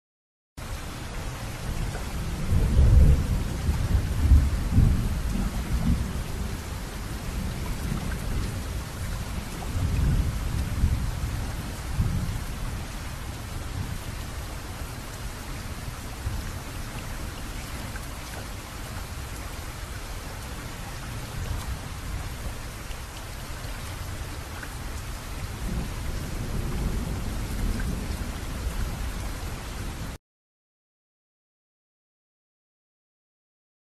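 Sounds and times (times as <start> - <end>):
steady rain falling: 0.6 - 30.2
thunder rumbling: 2.2 - 12.3, 25.6 - 29.1.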